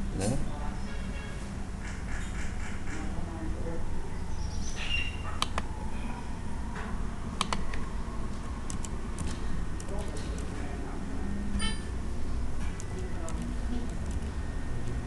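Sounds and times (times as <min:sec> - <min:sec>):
steady low hum: 0:00.0 - 0:15.0
mouse click: 0:05.4 - 0:05.7, 0:07.4 - 0:07.7
keyboard keys clicking: 0:08.7 - 0:10.5.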